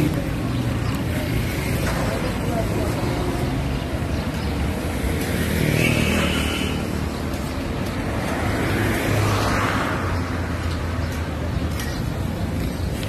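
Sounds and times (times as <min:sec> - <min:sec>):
street traffic hum: 0:00.0 - 0:13.0.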